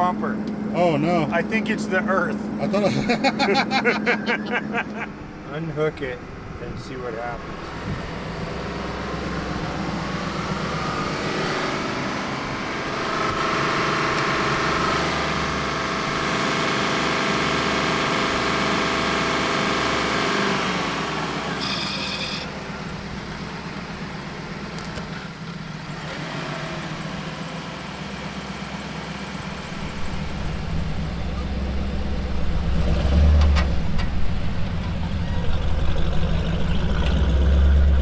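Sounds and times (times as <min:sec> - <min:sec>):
vehicle engine running: 0:04.5 - 0:38.0
electronic beep: 0:21.6 - 0:22.5.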